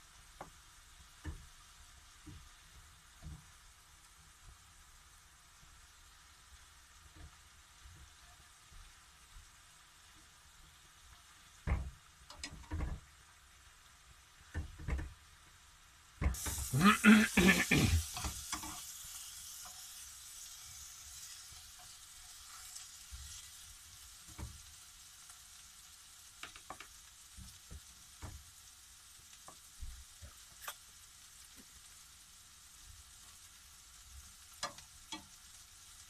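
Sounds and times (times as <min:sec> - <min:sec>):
mushrooms sizzling in a frying pan: 0:00.0 - 0:36.0
metal tongs clicking on pan: 0:12.3 - 0:12.9, 0:18.1 - 0:18.9, 0:34.6 - 0:35.4.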